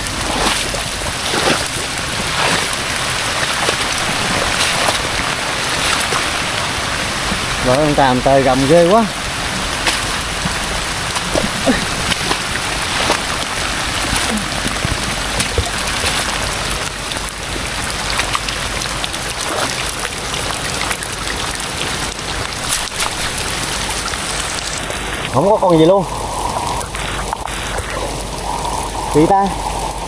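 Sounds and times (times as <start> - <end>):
heavy rain falling: 0.0 - 30.0
raindrops hitting close by: 0.0 - 30.0.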